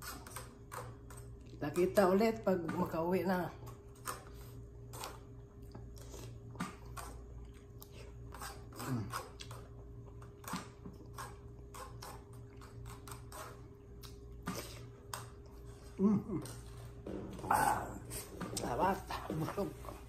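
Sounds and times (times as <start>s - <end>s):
steady low hum: 0.0s - 20.0s
person chewing with mouth smacks: 4.9s - 18.6s.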